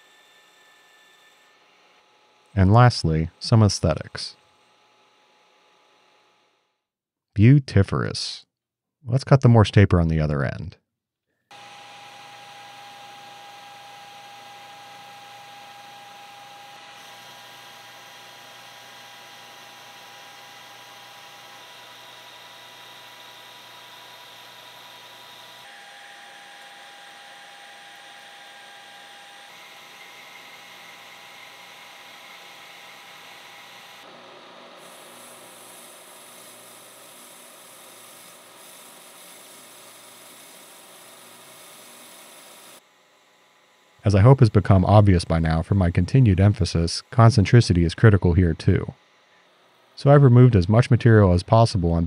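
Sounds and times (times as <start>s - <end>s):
metal lathe cutting metal bar: 0.0s - 6.5s, 11.5s - 44.7s.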